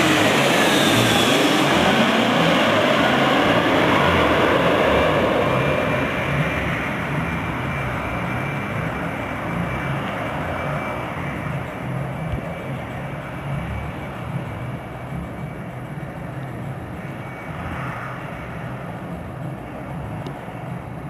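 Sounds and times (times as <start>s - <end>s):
airliner jet engines roaring: 0.0s - 21.0s.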